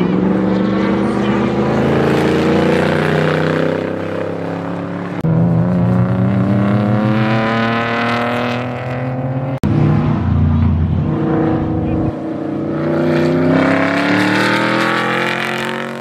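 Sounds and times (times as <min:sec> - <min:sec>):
race car engines accelerating: 0:00.0 - 0:16.0.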